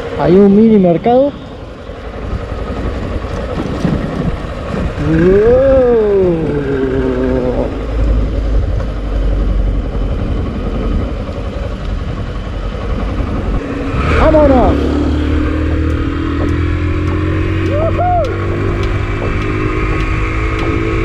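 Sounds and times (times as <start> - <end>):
motorcycle engine revving: 0.0 - 21.0
low rumble: 1.4 - 21.0.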